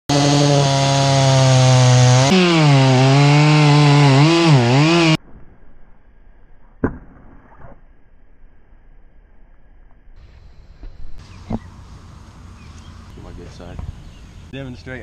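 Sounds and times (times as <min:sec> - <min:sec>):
chainsaw cutting wood: 0:00.1 - 0:05.2.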